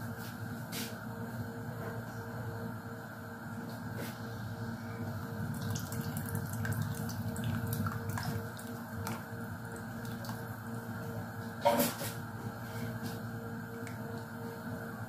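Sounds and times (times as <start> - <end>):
milk pouring into soup: 5.5 - 10.5.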